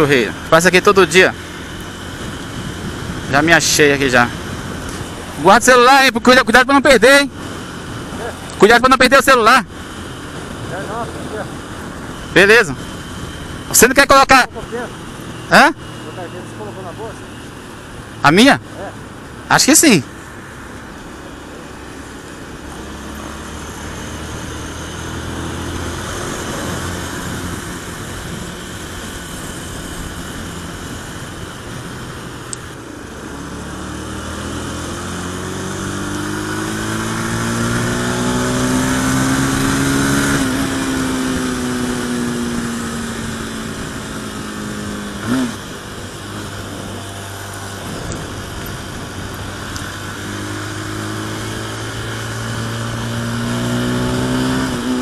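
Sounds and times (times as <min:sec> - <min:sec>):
motorcycle engine at speed: 0:00.0 - 0:55.0
wind noise: 0:01.5 - 0:05.6, 0:24.1 - 0:55.0.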